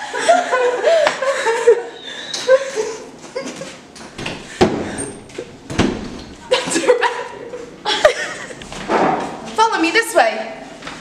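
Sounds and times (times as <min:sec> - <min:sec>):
wooden door thumping shut: 0:05.6 - 0:06.2, 0:08.7 - 0:09.4.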